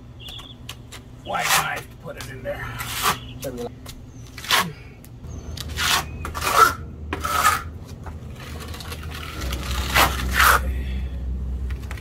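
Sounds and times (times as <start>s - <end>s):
trowel scraping wet stucco: 2.8s - 3.3s, 5.6s - 10.7s.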